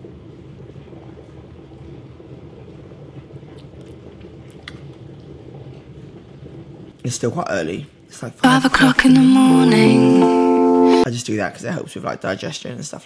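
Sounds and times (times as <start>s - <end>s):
man gulping a drink: 0.6s - 6.7s.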